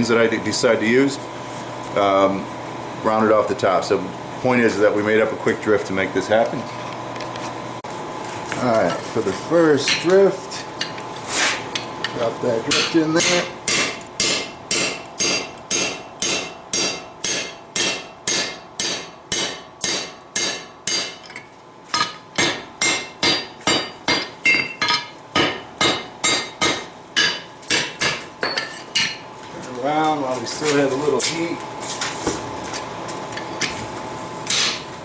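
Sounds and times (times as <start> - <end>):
hammer blows ringing on steel: 12.7 - 21.2, 22.0 - 28.6.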